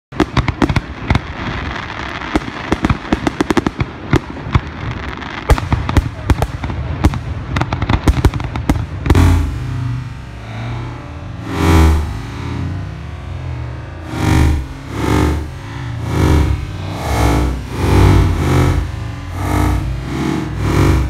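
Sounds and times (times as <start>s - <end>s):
fireworks bangs and crackling: 0.1s - 21.0s
distorted electric guitar music: 9.1s - 21.0s.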